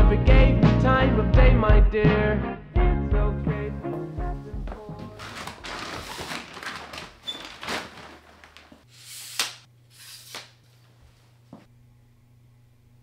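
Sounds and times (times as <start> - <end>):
belongings rustling and knocking: 5.0 - 8.8.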